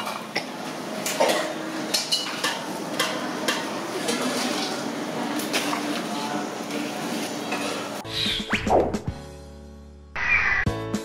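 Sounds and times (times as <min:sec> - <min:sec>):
metal utensils and pots clinking: 0:00.0 - 0:08.0.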